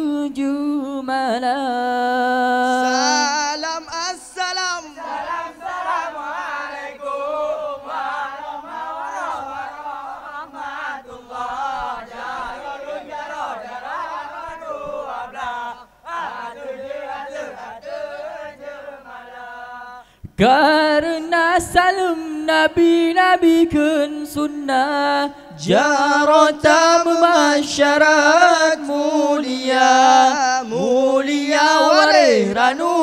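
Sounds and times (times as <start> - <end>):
group chanting: 2.7 - 20.0, 25.6 - 33.0.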